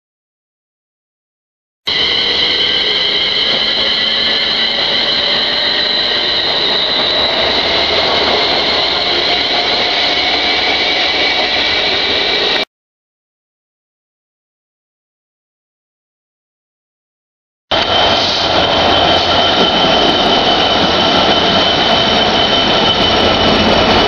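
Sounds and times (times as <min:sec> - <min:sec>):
high whining tones: 0:01.9 - 0:12.6, 0:17.7 - 0:24.0
train wheels rushing on rail: 0:01.9 - 0:12.7, 0:17.7 - 0:24.0.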